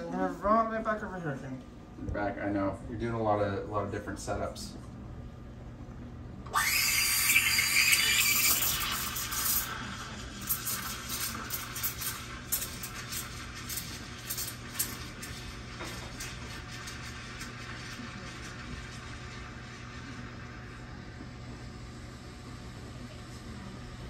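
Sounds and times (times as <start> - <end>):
utensils clinking against glassware: 10.4 - 15.3.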